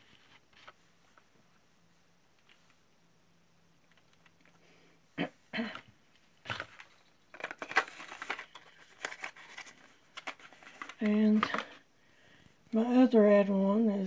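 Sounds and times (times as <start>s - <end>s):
box and tube being handled: 5.7s - 11.8s.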